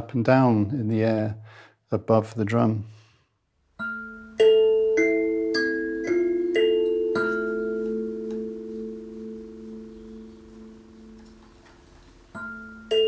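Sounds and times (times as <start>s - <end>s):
thumb piano notes ringing: 3.8s - 13.0s.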